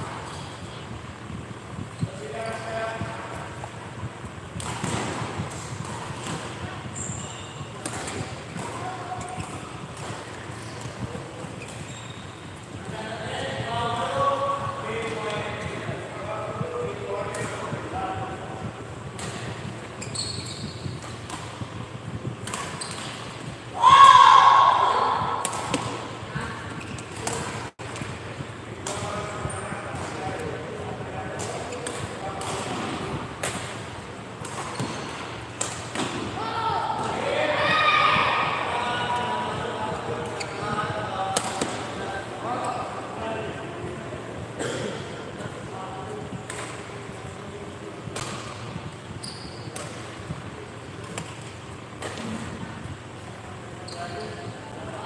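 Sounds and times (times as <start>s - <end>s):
footwork on court: 0.0s - 43.0s
racket striking shuttlecock: 4.5s - 6.6s, 7.8s - 11.0s, 25.4s - 26.1s, 27.0s - 28.1s, 48.1s - 48.8s
racket hitting shuttlecock: 4.5s - 6.7s, 7.8s - 11.9s, 22.4s - 23.6s, 25.0s - 28.2s, 28.8s - 29.1s, 31.3s - 36.4s, 41.3s - 42.0s, 46.4s - 47.0s, 48.0s - 48.9s, 49.7s - 50.4s, 51.0s - 52.6s
loud shout: 23.7s - 25.4s, 36.4s - 38.8s.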